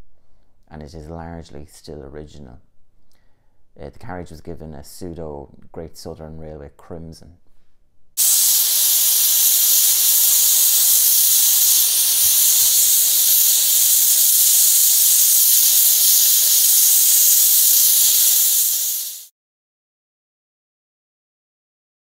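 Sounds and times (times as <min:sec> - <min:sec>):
steam locomotive venting steam: 0:08.2 - 0:19.3.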